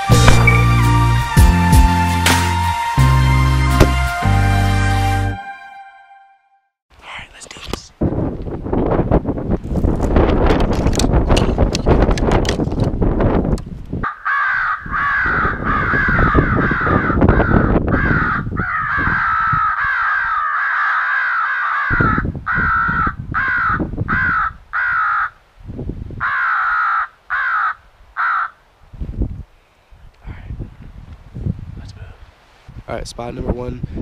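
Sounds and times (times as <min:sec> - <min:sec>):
crow call harsh caws: 0:14.0 - 0:25.4, 0:26.2 - 0:28.6.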